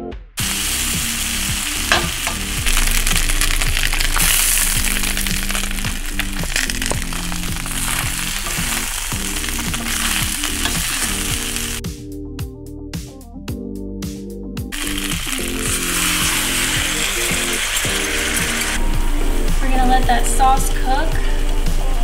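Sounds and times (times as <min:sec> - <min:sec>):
meat sizzling in oil: 0:00.4 - 0:11.8, 0:14.8 - 0:18.8.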